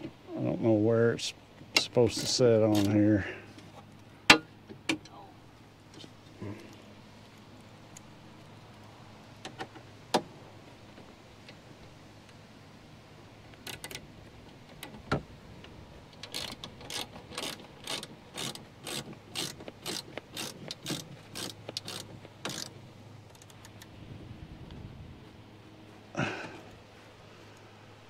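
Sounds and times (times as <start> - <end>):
ratchet wrench clicking: 16.2 - 23.9.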